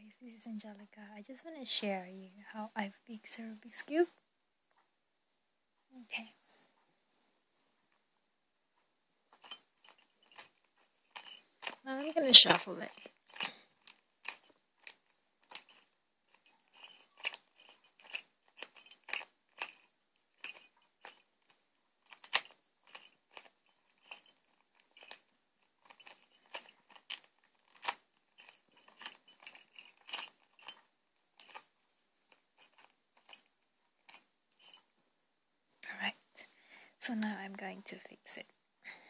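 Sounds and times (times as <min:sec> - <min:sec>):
puzzle cube clicking and scraping: 0:09.3 - 0:34.9.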